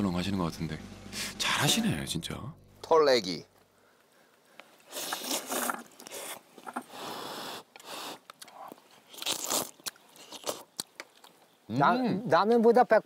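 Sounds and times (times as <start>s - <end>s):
chewing: 7.7s - 11.5s.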